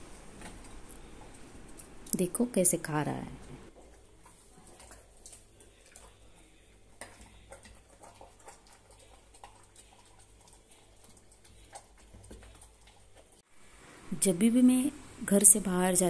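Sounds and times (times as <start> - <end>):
dog chewing: 3.8 - 13.4.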